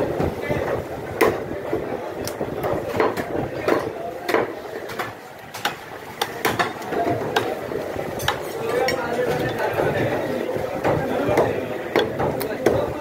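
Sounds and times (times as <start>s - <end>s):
cleaver chopping on wooden block: 10.8s - 12.9s.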